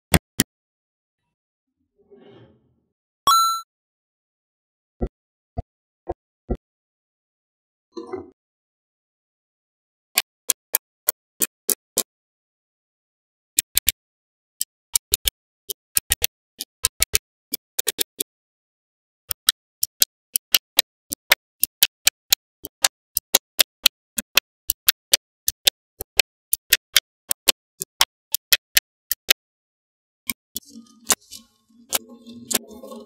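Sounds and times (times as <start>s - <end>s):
magnetic balls clicking together: 14.6s - 18.3s, 19.3s - 29.4s.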